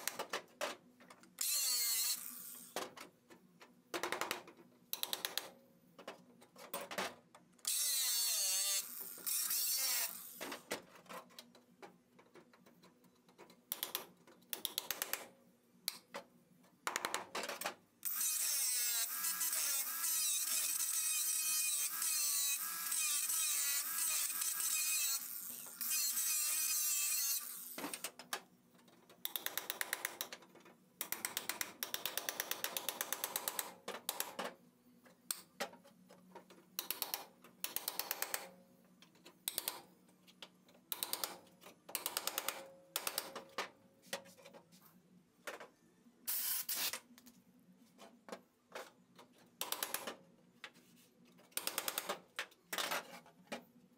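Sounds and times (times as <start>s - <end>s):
angle grinder cutting steel: 1.4s - 2.6s, 7.7s - 10.4s, 18.1s - 27.8s.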